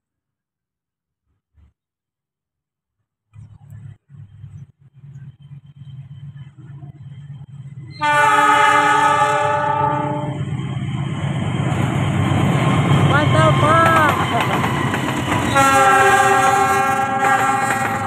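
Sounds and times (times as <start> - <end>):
locomotive engine rumble: 3.3 - 18.0
multi-note train air horn: 8.0 - 10.5, 15.5 - 18.0.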